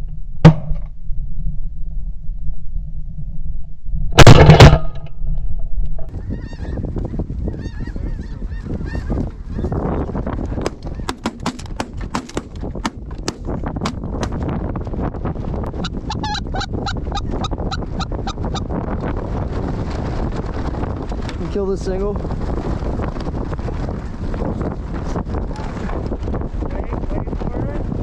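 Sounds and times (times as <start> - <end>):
wind on microphone: 0.0 - 28.0
shotgun blasts: 4.2 - 5.0
sharp crack: 4.2 - 5.1, 10.6 - 14.4
geese honking: 6.2 - 10.2, 15.8 - 18.7.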